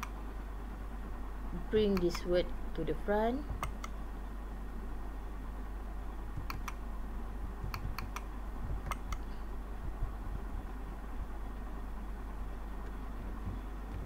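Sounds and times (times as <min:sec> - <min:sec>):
steady low hum: 0:00.0 - 0:14.0
computer mouse clicking: 0:01.9 - 0:02.2, 0:03.5 - 0:04.0, 0:06.4 - 0:06.8, 0:07.6 - 0:09.3.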